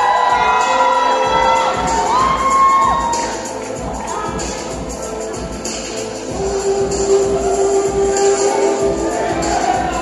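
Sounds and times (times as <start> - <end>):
crowd cheering: 0.0 - 4.6
background music: 0.0 - 10.0.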